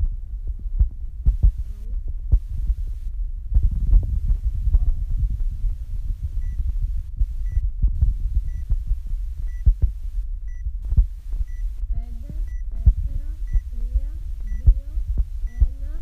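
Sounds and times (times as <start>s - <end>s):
deep uneven thumping: 0.0s - 16.0s
short high timer beeps: 12.4s - 12.6s.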